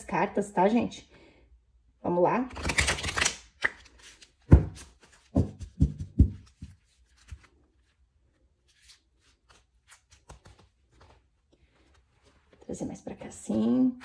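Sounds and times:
cards tapping and slapping: 0:02.6 - 0:07.5.

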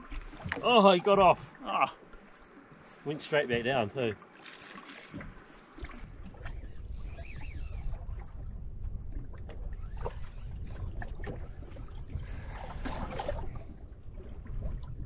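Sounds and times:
light knocks and clicks from boat: 0:00.0 - 0:15.0
water lapping around boat: 0:00.0 - 0:15.0
low rumble of wind: 0:05.1 - 0:15.0.

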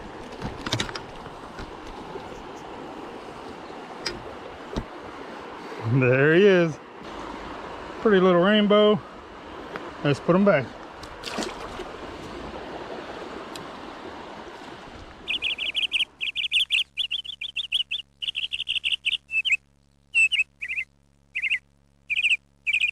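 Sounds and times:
creek water rushing: 0:00.0 - 0:16.2
bird chirping: 0:15.3 - 0:22.9.

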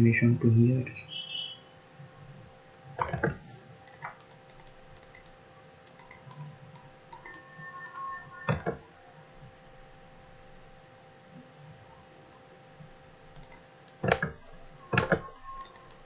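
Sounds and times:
faint steady hum: 0:00.0 - 0:16.0
computer mouse clicking: 0:03.0 - 0:08.8, 0:13.3 - 0:16.0.

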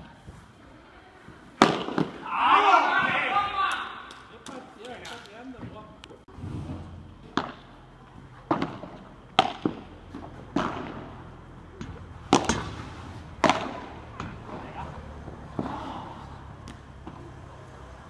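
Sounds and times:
padel ball hits: 0:08.5 - 0:11.2, 0:11.8 - 0:14.7.

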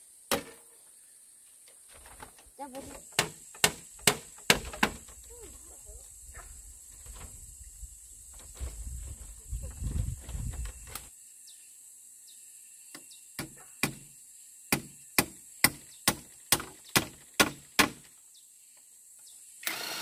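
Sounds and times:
hand tool striking sharp blows: 0:03.1 - 0:05.0.

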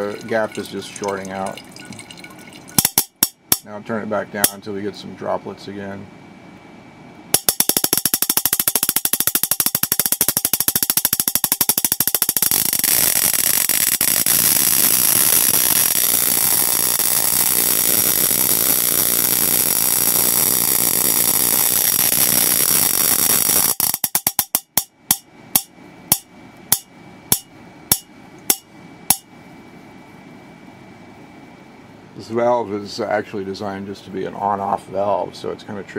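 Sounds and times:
electric spark gap crackling: 0:02.8 - 0:03.6, 0:07.4 - 0:24.8.

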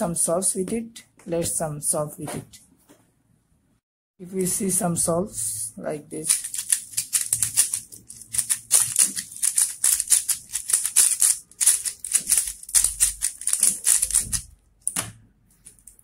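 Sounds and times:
plastic cube clicking as turned: 0:06.3 - 0:14.4.

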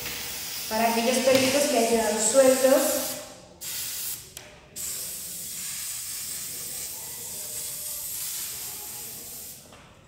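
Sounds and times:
aerosol can spraying: 0:02.5 - 0:04.2, 0:04.8 - 0:09.6.

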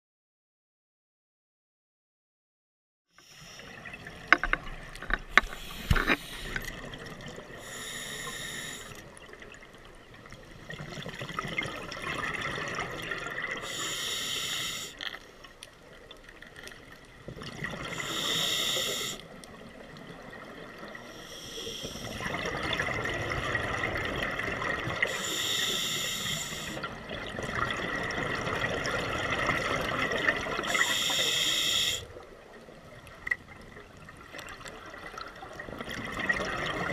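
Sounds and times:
scuba regulator breathing hiss: 0:03.2 - 0:03.8, 0:05.4 - 0:06.7, 0:07.5 - 0:09.1, 0:13.6 - 0:15.0, 0:17.9 - 0:19.3, 0:21.0 - 0:22.4, 0:25.0 - 0:26.9, 0:30.6 - 0:32.1
exhaled bubbles rushing: 0:10.7 - 0:13.6, 0:22.0 - 0:25.1, 0:26.8 - 0:30.8, 0:34.5 - 0:36.9.

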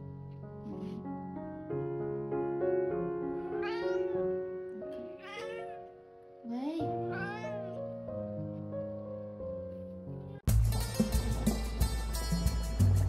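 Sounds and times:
background music: 0:00.0 - 0:13.0
cat meowing: 0:03.6 - 0:04.2, 0:05.0 - 0:05.9, 0:07.0 - 0:07.8.

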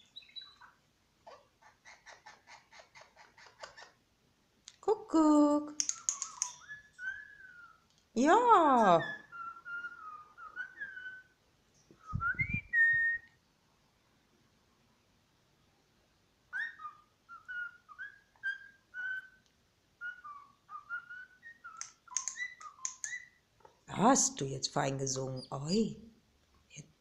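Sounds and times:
parrot whistling: 0:00.0 - 0:00.7, 0:05.8 - 0:07.8, 0:08.9 - 0:11.4, 0:12.0 - 0:13.3, 0:16.5 - 0:19.4, 0:20.0 - 0:23.4.

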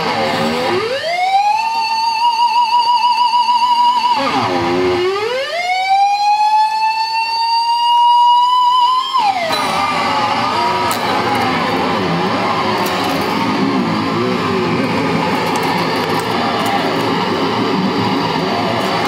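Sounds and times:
electric guitar with whammy dives: 0:00.0 - 0:02.9, 0:09.1 - 0:19.0.

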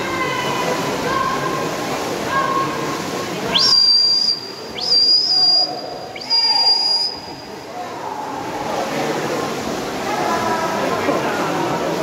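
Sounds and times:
crowd voices: 0:00.0 - 0:12.0
shrill whistle blasts: 0:03.6 - 0:07.4.

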